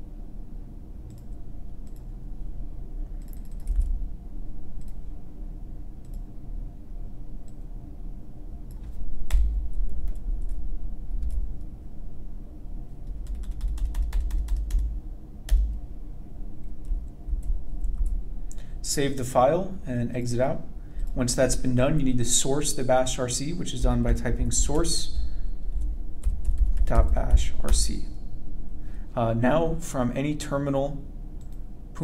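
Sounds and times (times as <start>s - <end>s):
keyboard and mouse clicks: 3.2s - 4.0s.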